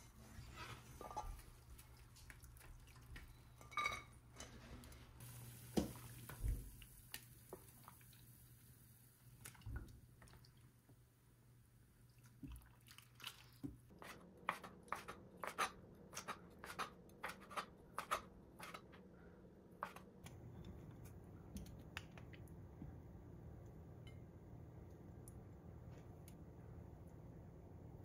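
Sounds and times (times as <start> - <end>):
low steady hum: 15.3 - 28.0.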